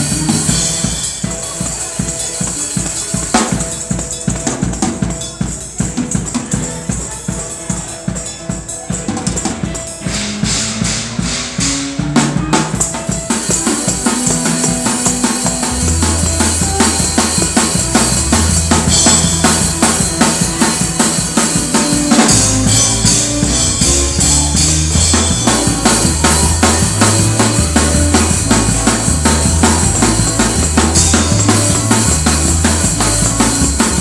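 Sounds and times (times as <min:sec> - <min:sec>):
low bass notes: 0:00.0 - 0:00.7, 0:14.4 - 0:34.0
fast drum kit rhythm: 0:00.0 - 0:34.0.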